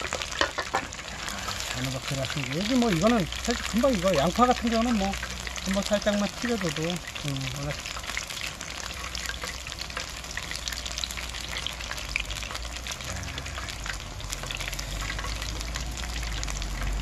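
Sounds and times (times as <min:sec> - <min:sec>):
food deep-frying in oil: 0:00.0 - 0:17.0.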